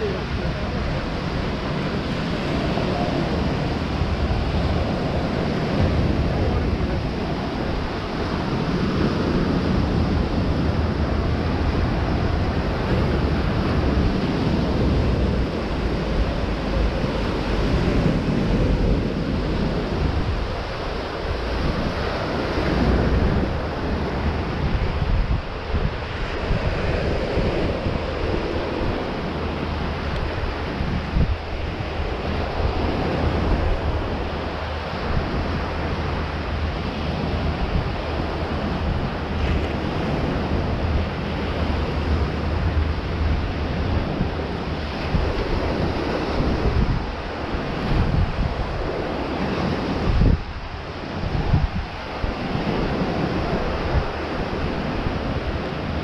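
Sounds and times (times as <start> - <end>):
ocean surf washing onto beach: 0.0 - 56.0
wind blowing across microphone: 0.0 - 56.0.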